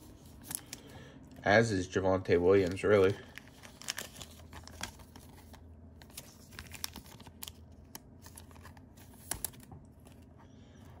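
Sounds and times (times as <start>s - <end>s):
plastic sleeve crinkling: 2.4s - 10.4s.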